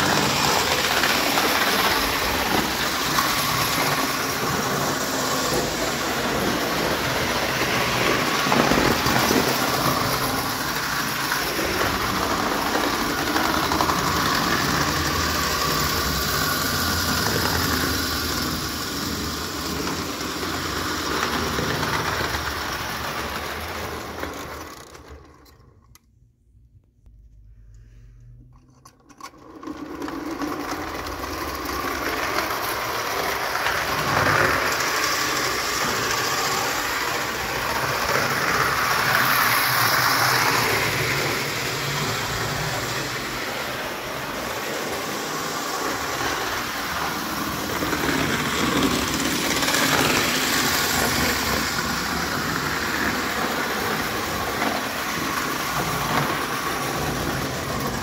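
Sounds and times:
toy train whirring and rattling: 0:00.0 - 0:26.0, 0:28.6 - 0:58.0.

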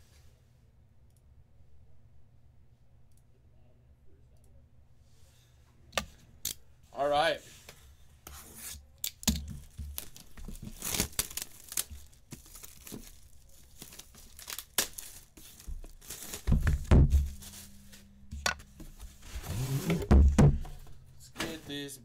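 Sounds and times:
plastic wrap crinkling: 0:09.4 - 0:19.7
low thuds of box handling: 0:16.5 - 0:17.7, 0:18.4 - 0:21.6.

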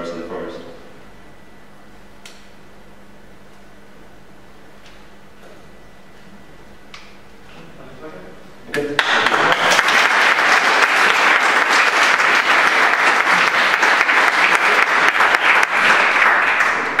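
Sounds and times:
audience applauding: 0:09.0 - 0:17.0.

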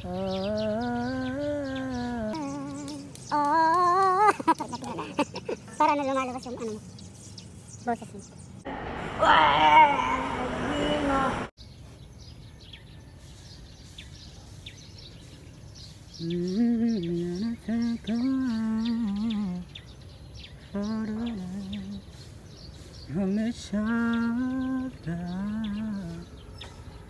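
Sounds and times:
person humming: 0:00.0 - 0:05.1.

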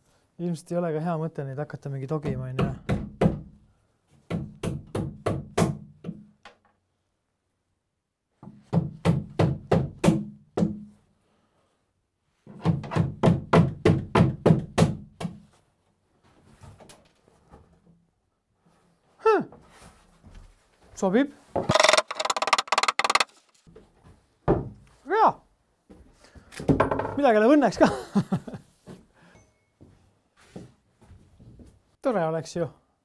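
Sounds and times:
hammer blows on screws in wood: 0:21.6 - 0:23.5.

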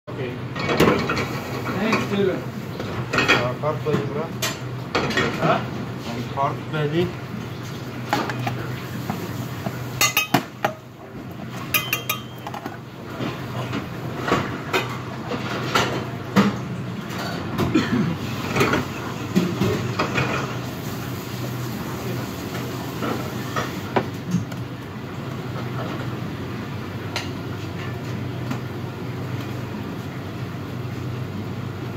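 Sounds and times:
metal pans and utensils clinking: 0:08.1 - 0:10.8, 0:11.5 - 0:17.7.

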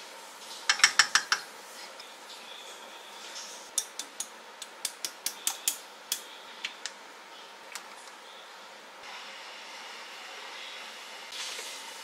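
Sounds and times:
kitchen utensils clicking and tapping: 0:00.6 - 0:01.5.

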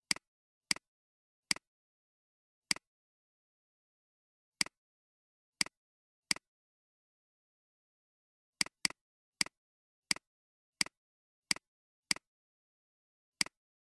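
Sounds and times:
computer mouse clicks: 0:05.6 - 0:06.5, 0:08.6 - 0:12.3, 0:13.4 - 0:13.6.

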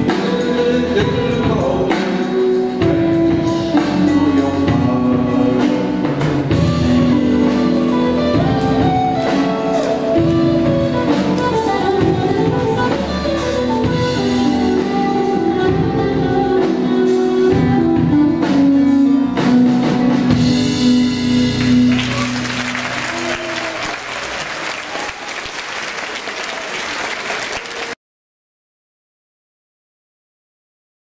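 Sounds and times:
live band playing: 0:00.0 - 0:28.0
audience applause: 0:21.6 - 0:28.0.

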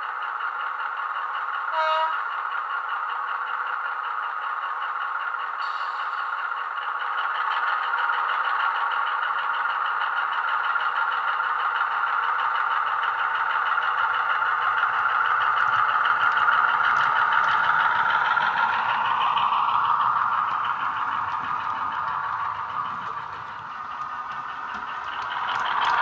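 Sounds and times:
diesel engine sound pulsing: 0:00.0 - 0:26.0
low hum: 0:12.3 - 0:26.0.

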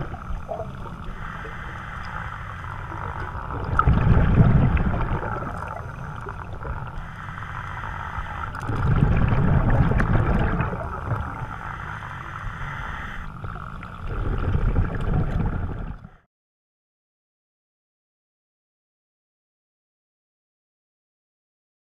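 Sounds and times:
regulator breathing underwater: 0:00.0 - 0:14.6
exhaled bubbles rumbling: 0:00.0 - 0:16.2.

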